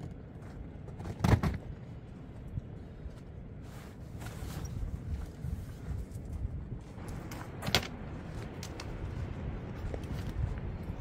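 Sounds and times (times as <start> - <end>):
wind buffeting microphone: 4.5 - 11.0.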